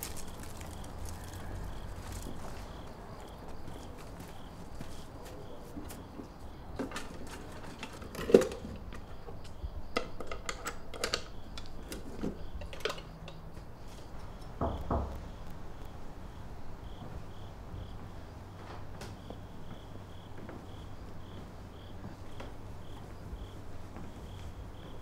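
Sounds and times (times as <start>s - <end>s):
clicks and knocks of small objects: 0.0s - 2.7s, 9.9s - 13.4s
crickets chirping: 0.0s - 25.0s.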